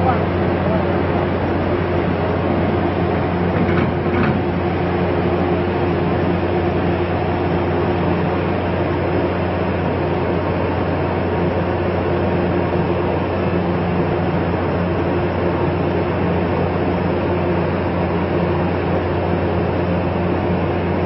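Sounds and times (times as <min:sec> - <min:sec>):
ship machinery droning: 0:00.0 - 0:09.9.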